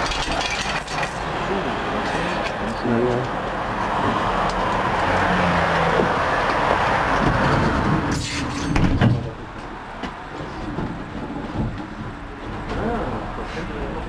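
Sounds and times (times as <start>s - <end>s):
loud rattle: 0.0s - 1.3s
tram rolling noise: 0.0s - 14.0s.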